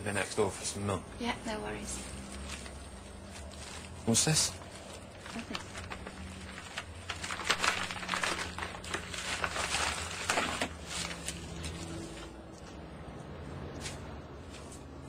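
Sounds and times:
papers rustling and crinkling: 2.0 - 12.8.

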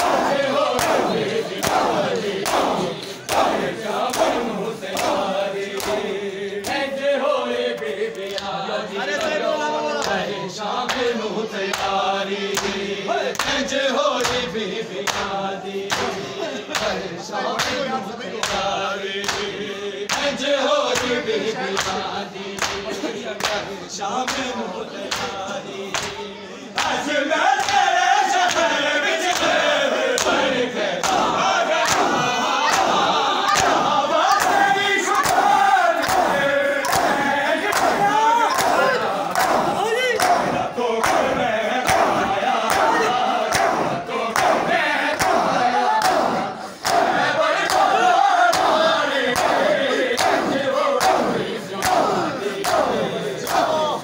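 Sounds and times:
hands slapping chests: 0.0 - 6.9, 11.7 - 17.0, 18.4 - 21.2, 21.8 - 22.0, 22.6 - 24.5, 25.1 - 26.2, 26.8 - 27.0, 31.0 - 47.9, 48.5 - 53.7
men chanting a lament: 0.0 - 54.0.

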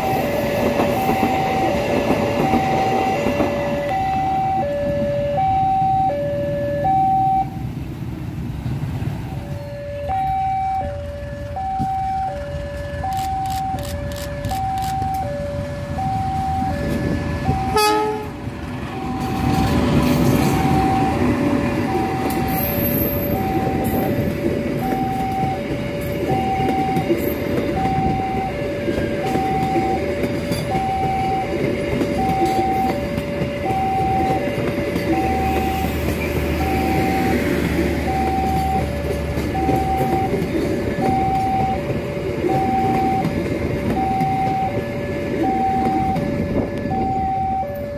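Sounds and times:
diesel locomotive hauling train: 0.0 - 47.9
passenger train passing: 0.0 - 47.9
level crossing alarm ding-dong: 3.8 - 7.5, 24.8 - 28.6, 30.7 - 31.5, 38.1 - 40.4, 41.0 - 41.9, 42.5 - 44.8, 45.4 - 47.9.

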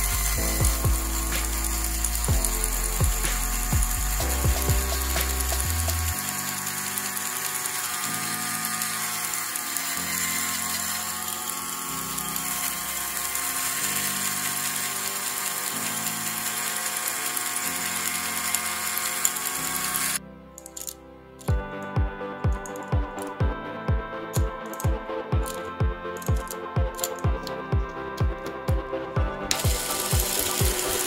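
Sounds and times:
small electric motor whirring: 0.0 - 21.6, 24.4 - 27.6, 29.5 - 31.0.

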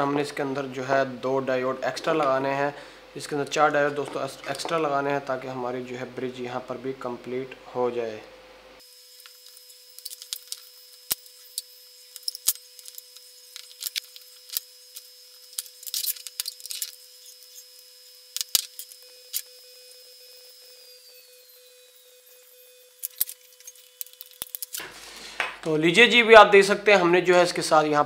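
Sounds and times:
faint steady hum: 0.0 - 28.0
solder crackling: 8.8 - 20.2.

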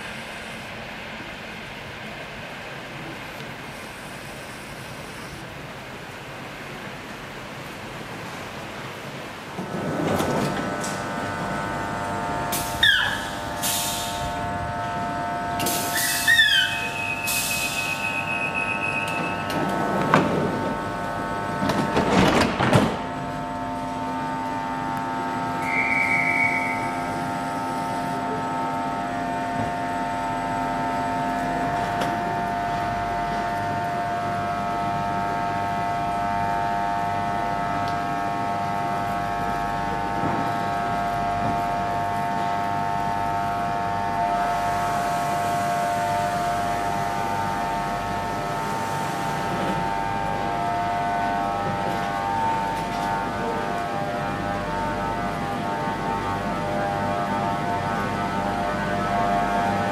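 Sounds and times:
train clanks and rattles: 0.0 - 14.6, 17.4 - 25.4, 31.3 - 33.9, 38.7 - 43.2
electric train whine: 0.0 - 59.9.

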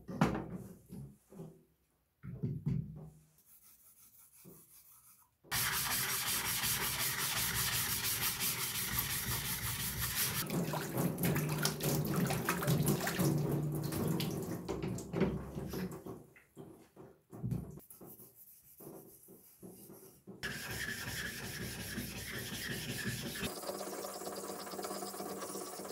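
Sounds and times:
stone grinding on whetstone: 20.4 - 25.9.

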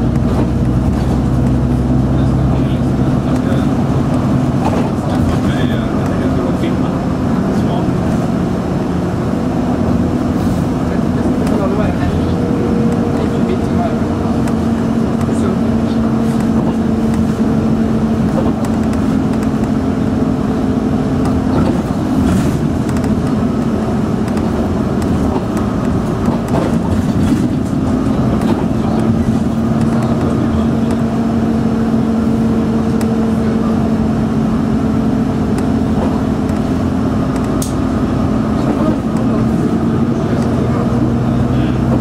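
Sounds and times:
bus engine drone: 0.0 - 42.0.

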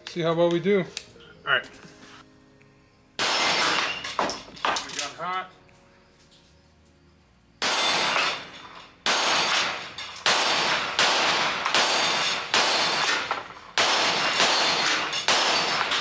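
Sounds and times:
pistol shots echoing: 3.2 - 4.3, 7.6 - 16.0.

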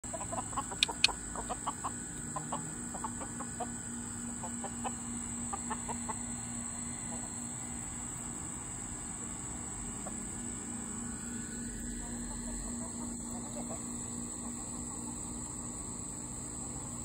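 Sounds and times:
hens clucking: 0.1 - 6.3, 12.0 - 14.8.

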